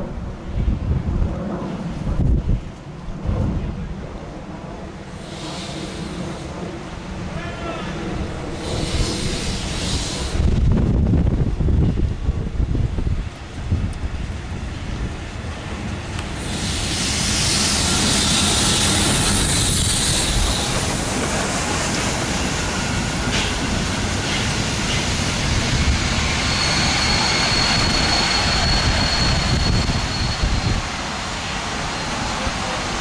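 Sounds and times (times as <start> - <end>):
passenger coaches rolling by: 0.0 - 33.0
steam locomotive passing: 0.0 - 33.0
steam hiss: 5.1 - 7.0, 8.4 - 10.8, 16.2 - 33.0
high wheel squeal: 16.4 - 21.1, 21.9 - 31.0.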